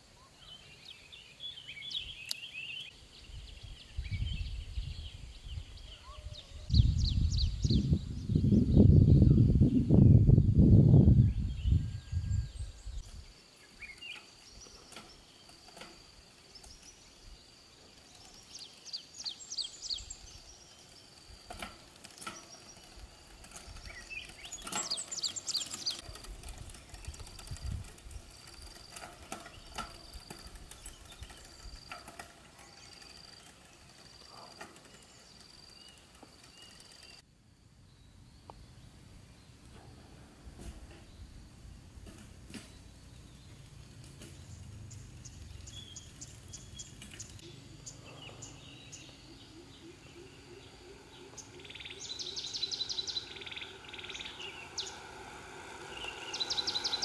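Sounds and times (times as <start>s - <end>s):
bicycle rolling past: 11.5s - 37.3s, 40.0s - 57.0s
high insect drone: 13.0s - 57.0s
bird chirps: 44.3s - 57.0s.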